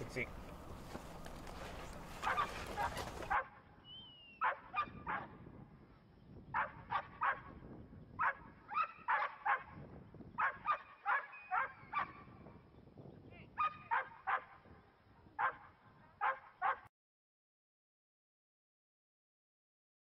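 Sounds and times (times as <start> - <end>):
dog barking: 2.2 - 3.6, 4.4 - 5.4, 6.5 - 7.5, 8.2 - 9.8, 10.4 - 12.3, 13.6 - 14.6, 15.4 - 16.9.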